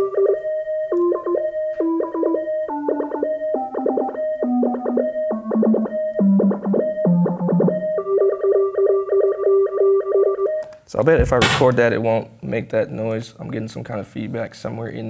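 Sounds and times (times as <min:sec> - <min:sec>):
synthesizer arpeggio: 0:00.0 - 0:10.6.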